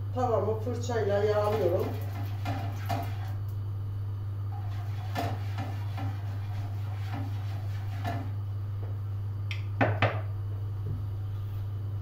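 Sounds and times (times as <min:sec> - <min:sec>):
steady low hum: 0:00.0 - 0:12.0
pastry brush strokes on pan: 0:04.6 - 0:08.3.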